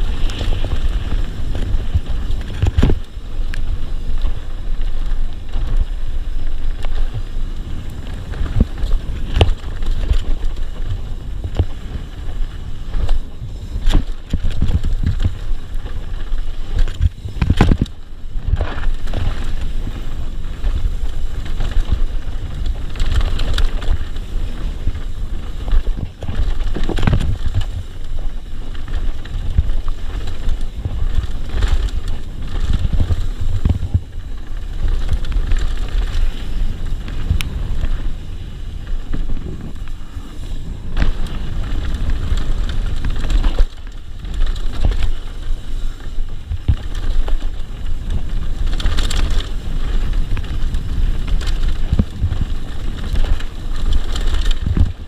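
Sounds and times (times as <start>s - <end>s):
bike knocking and rattling: 0.0s - 55.0s
wind buffeting microphone: 0.0s - 55.0s.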